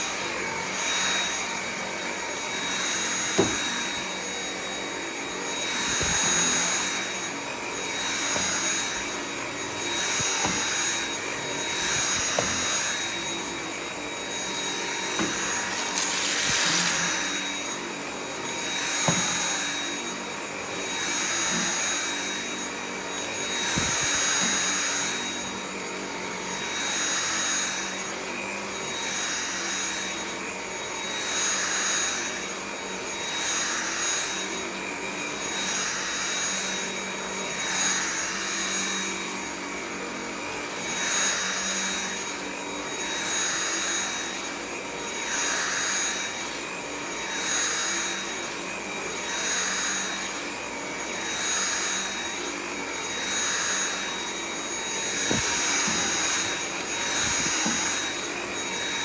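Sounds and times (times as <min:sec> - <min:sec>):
vacuum cleaner motor whine: 0:00.0 - 0:59.0
vacuum airflow rushing: 0:14.9 - 0:18.1.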